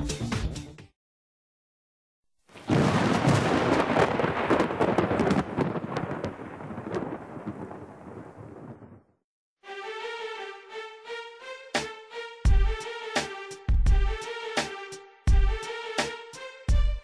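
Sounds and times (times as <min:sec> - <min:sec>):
thunder rumbling and crackling: 0:02.6 - 0:09.2.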